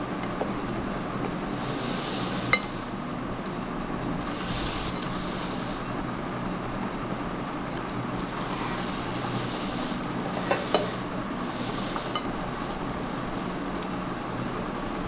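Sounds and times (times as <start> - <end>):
steady low hum: 0.0 - 15.0
scraping in a glass bowl: 8.3 - 12.3.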